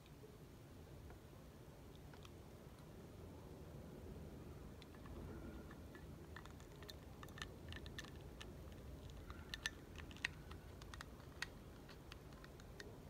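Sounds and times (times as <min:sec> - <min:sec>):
plastic toy pieces clicking: 0:05.9 - 0:12.9.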